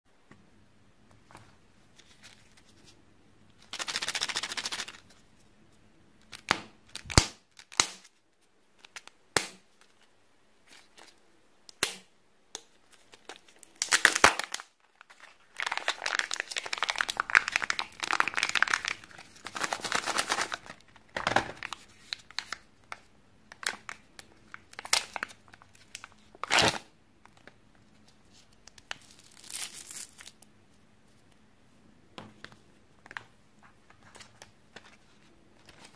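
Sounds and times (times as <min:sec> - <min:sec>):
foil wrapping crinkling and tearing: 0:13.2 - 0:20.8.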